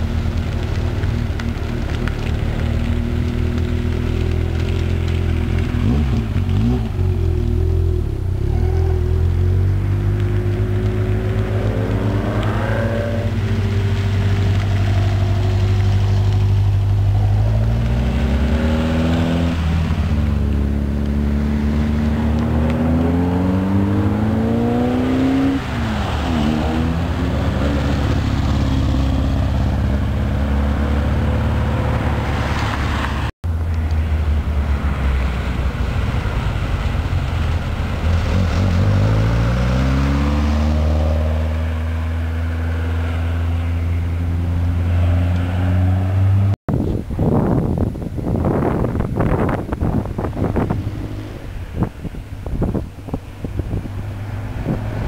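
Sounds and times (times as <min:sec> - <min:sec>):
low engine rumble: 0:00.0 - 0:40.2
sports cars revving past: 0:04.0 - 0:33.3, 0:36.2 - 0:46.6, 0:50.3 - 0:52.0.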